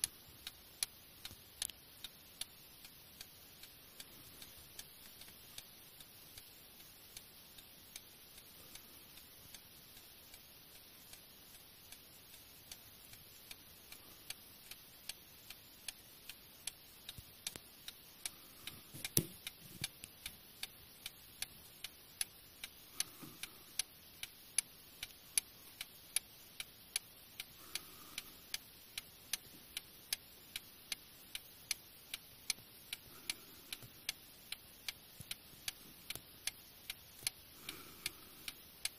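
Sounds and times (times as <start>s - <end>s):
clock ticking: 0.0s - 38.9s.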